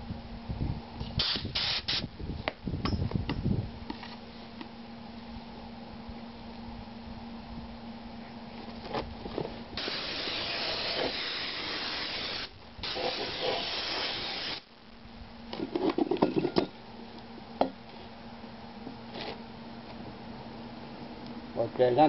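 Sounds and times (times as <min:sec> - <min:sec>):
air blast gun hissing: 0:01.2 - 0:02.1, 0:09.8 - 0:14.7
metal part clanking on ground: 0:15.6 - 0:16.8.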